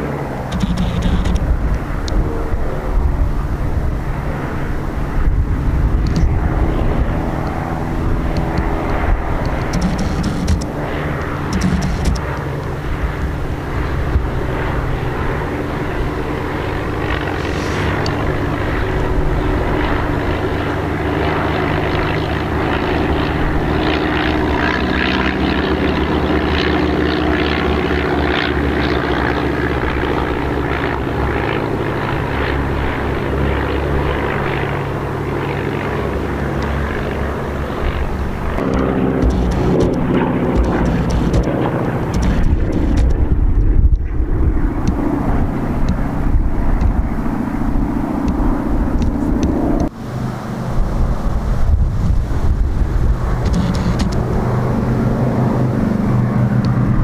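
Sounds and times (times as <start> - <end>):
deeper piston engine: 0.0 - 57.0
propeller aircraft engine drone: 0.0 - 57.0.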